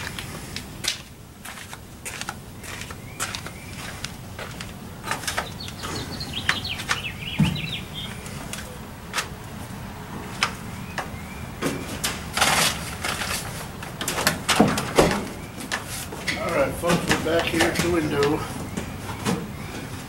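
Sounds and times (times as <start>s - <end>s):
high chirps: 5.4s - 8.9s
plastic tarp rustling: 12.0s - 18.5s.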